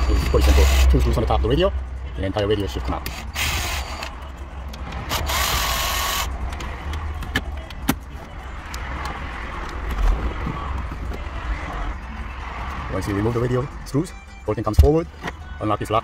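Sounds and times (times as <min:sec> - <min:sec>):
power screwdriver whining: 0:00.2 - 0:00.9, 0:03.0 - 0:04.1, 0:05.1 - 0:06.3.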